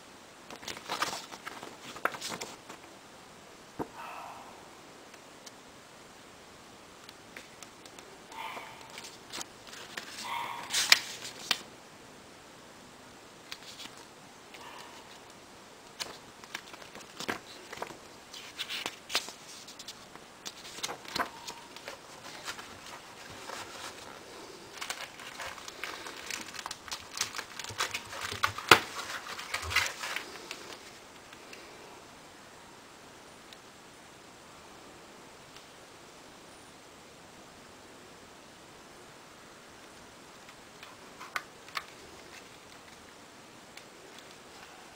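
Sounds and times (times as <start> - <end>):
paper pages rustling: 0.5 - 2.9, 7.4 - 11.7, 13.5 - 31.0, 40.4 - 44.8.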